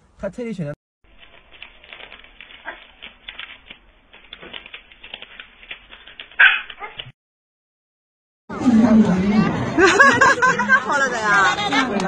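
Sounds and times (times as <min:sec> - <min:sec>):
banknotes flicked by hand: 0:01.1 - 0:07.1
dog bark: 0:02.6 - 0:02.9, 0:06.4 - 0:07.1.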